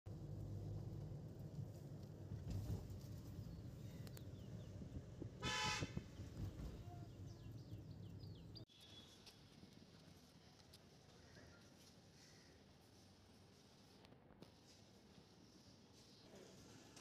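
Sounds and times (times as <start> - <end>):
car road rumble: 0.1 - 8.7
outdoor background noise: 0.1 - 17.0
car horn honk: 5.4 - 6.0.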